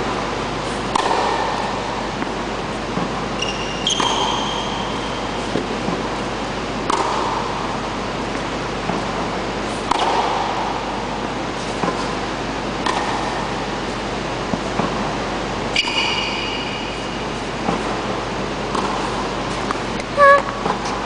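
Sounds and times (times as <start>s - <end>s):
steady background hiss: 0.0s - 21.0s
tennis ball bouncing: 0.6s - 15.1s, 15.7s - 21.0s
tennis racket hitting ball: 0.6s - 15.1s, 18.7s - 21.0s
high squeaks: 20.2s - 20.6s.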